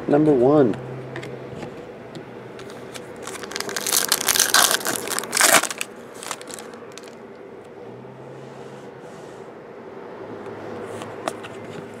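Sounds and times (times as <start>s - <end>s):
plastic foil wrapper crinkling: 3.0s - 7.2s.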